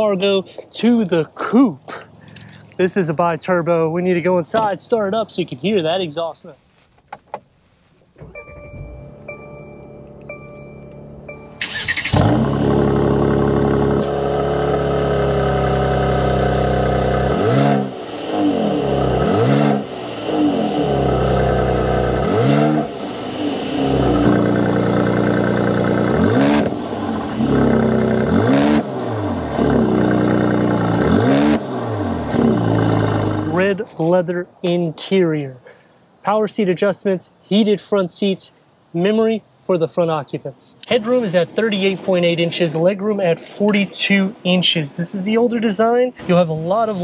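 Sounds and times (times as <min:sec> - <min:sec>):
car engine idling: 0:08.1 - 0:33.7
car engine starting: 0:08.1 - 0:33.8
car warning chime beeping: 0:08.2 - 0:12.1
car engine revving: 0:11.1 - 0:33.7.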